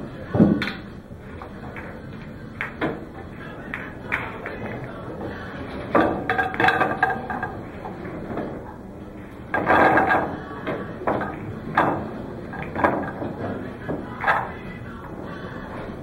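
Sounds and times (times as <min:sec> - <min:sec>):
pool balls clacking: 0:00.0 - 0:16.0.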